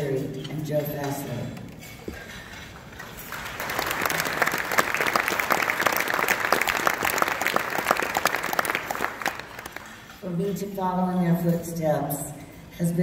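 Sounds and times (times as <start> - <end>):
audience applauding: 3.2 - 10.1.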